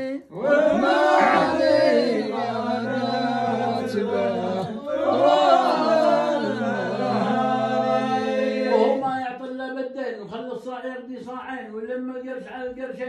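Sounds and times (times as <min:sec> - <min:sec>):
man speaking: 0:08.8 - 0:13.0.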